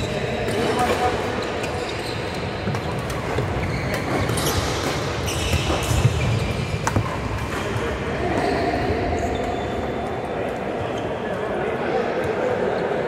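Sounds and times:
sports hall background noise: 0.0 - 13.0.

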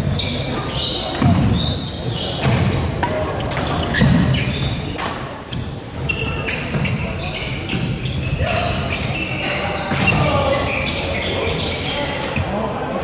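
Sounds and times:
shoes squeaking: 0.0 - 12.6
rackets striking shuttlecock: 2.4 - 5.4.

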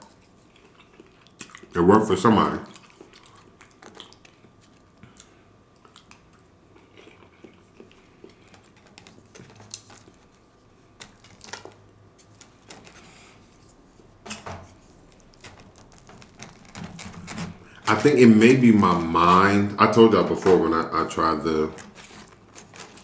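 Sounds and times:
faint chewing: 0.0 - 1.8, 2.6 - 14.1
plastic fork scraping styrofoam container: 15.5 - 19.5.

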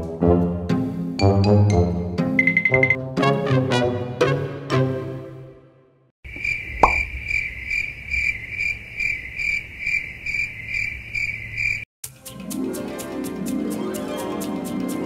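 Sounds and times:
crickets chirping: 6.3 - 11.9.

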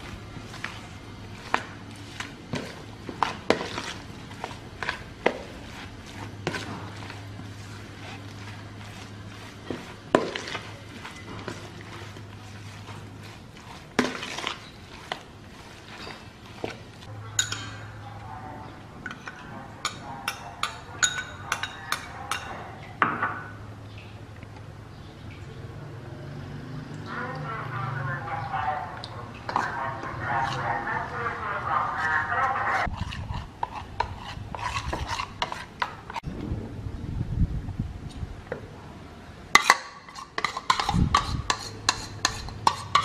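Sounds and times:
meat mixed in plastic bowl: 0.0 - 17.1, 27.1 - 36.2
metal spoon clinking ceramic bowl: 17.3 - 18.0, 19.0 - 22.6.

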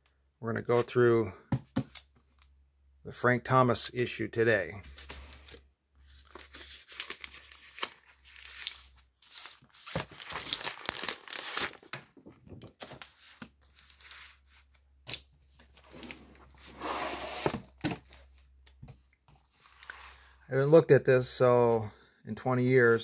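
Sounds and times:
plastic sleeve crinkling: 4.9 - 12.0.

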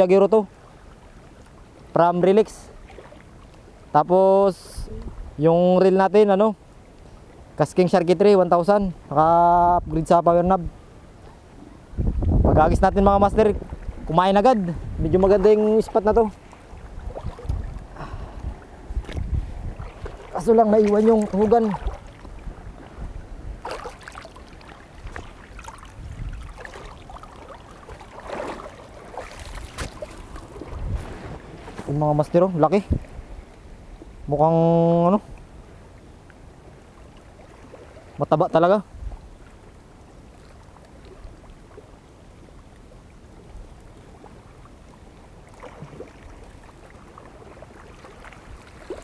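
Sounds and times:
water lapping over rocks: 0.5 - 3.9, 13.2 - 34.2, 35.3 - 38.3, 39.1 - 49.0
small splashes: 2.6 - 3.6, 15.2 - 23.0, 23.6 - 31.9, 45.3 - 49.0
wind on microphone: 4.7 - 5.5, 11.6 - 24.0, 24.9 - 35.5, 38.9 - 39.4.

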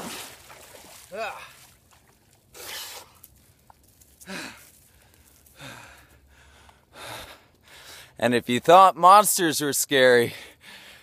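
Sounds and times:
man gasping breaths: 4.2 - 8.2, 10.4 - 11.0.

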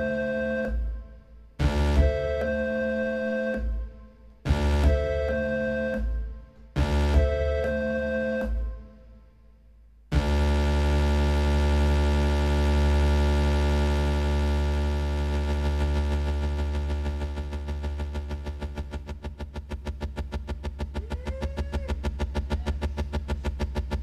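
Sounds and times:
synthesizer drone: 0.0 - 9.0, 10.1 - 24.0.

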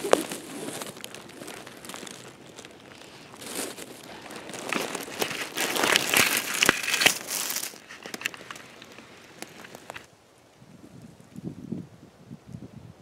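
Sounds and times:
twigs snapping: 0.0 - 10.1
pine needles and twigs rustling: 0.0 - 10.5.

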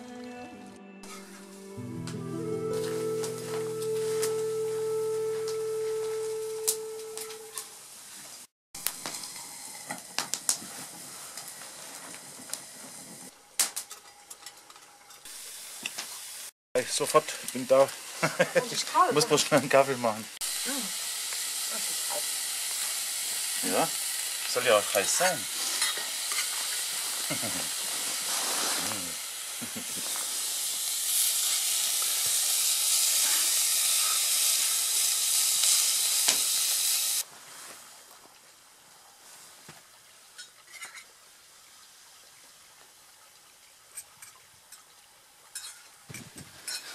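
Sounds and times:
green beans sizzling in a pan: 5.4 - 38.4, 39.0 - 42.1, 45.5 - 46.9
fire pops and snaps: 8.8 - 9.3, 9.9 - 12.6, 13.6 - 14.0
campfire crackling: 8.8 - 14.1, 20.5 - 38.4
steady hiss: 15.3 - 39.9.

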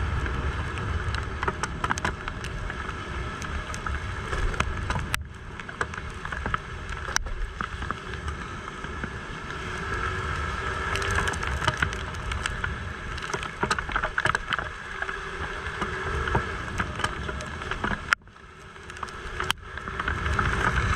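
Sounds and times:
scooter engine: 0.0 - 20.9
tyres on wet road: 0.0 - 20.9
wind rumbling on microphone: 0.0 - 20.9
scattered clicks: 1.0 - 2.8.

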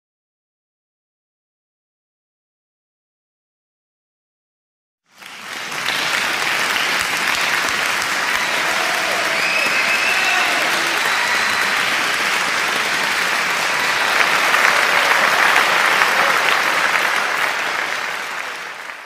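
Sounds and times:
crowd applause: 5.1 - 19.0.

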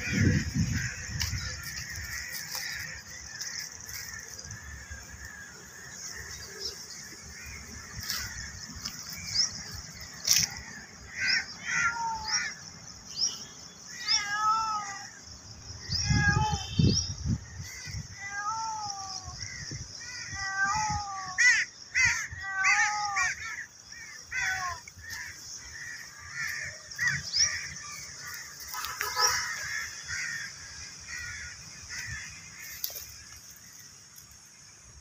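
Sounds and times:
crows cawing: 0.0 - 12.7, 19.3 - 33.9
high insect drone: 0.0 - 35.0.

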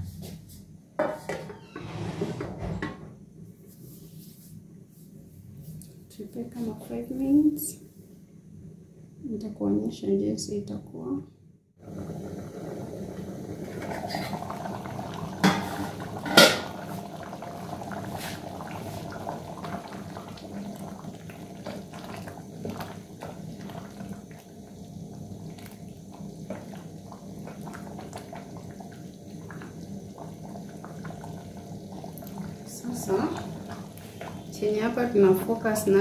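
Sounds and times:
stew bubbling in a pot: 11.8 - 36.0.

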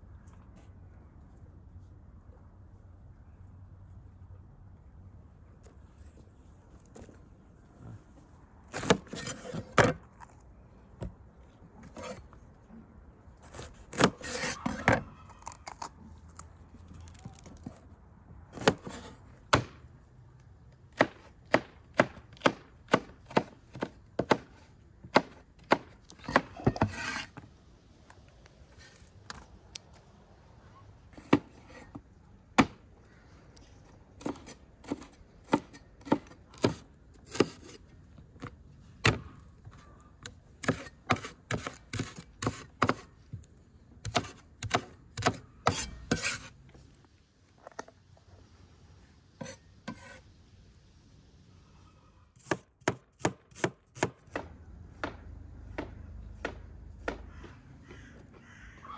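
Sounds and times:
scraping on cutting board: 8.7 - 9.8, 26.3 - 27.4, 45.2 - 46.6, 49.4 - 50.2
cleaver chopping on wooden board: 21.0 - 27.2, 52.4 - 58.0.

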